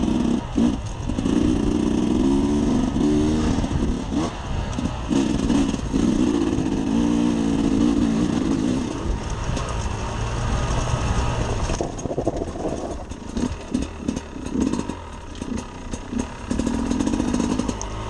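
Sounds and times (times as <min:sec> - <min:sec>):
motorcycle engine revving: 0:00.0 - 0:18.0
stones and chassis clicking: 0:08.9 - 0:18.0.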